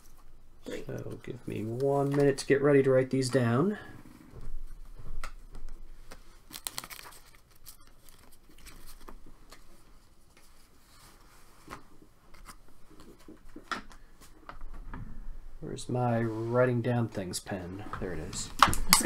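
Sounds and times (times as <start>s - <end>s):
paper rustling: 4.7s - 14.4s.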